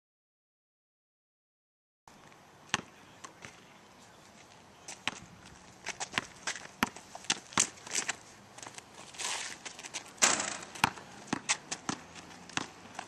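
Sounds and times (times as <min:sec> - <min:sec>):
sneakers scuffing: 0:02.2 - 0:13.0
basketball bouncing on asphalt: 0:02.7 - 0:03.6, 0:04.9 - 0:13.0.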